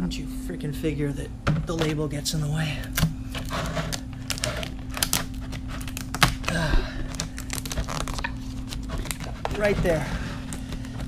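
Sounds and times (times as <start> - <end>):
plastic crinkle: 2.8 - 11.0.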